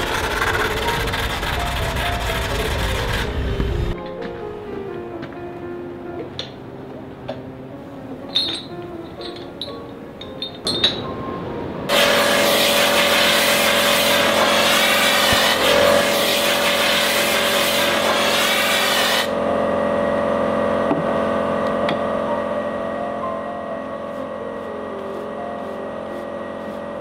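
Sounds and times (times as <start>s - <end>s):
machine hum: 0.0s - 4.9s, 7.5s - 27.0s.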